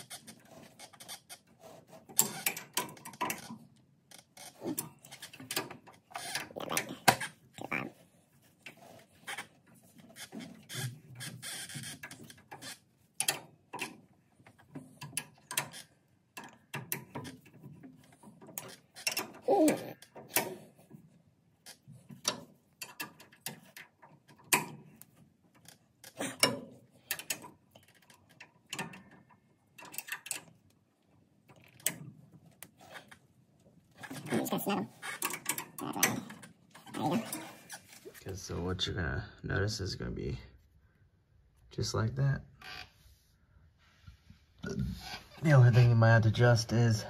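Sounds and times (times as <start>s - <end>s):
metallic clicks and knocks: 2.1s - 7.3s, 10.2s - 19.4s, 21.7s - 30.8s.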